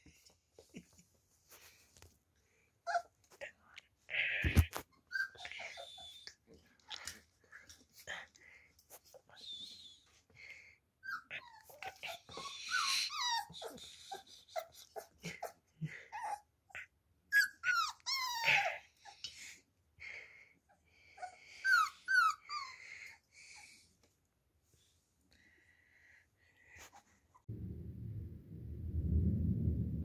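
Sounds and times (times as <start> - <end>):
puppy whimpering and squeaking: 2.9 - 3.1, 4.9 - 6.3, 11.0 - 15.5, 16.1 - 19.2, 21.2 - 22.8.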